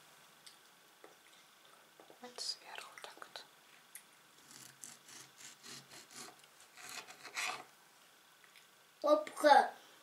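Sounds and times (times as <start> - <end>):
knife sawing through tomato: 4.5 - 7.6.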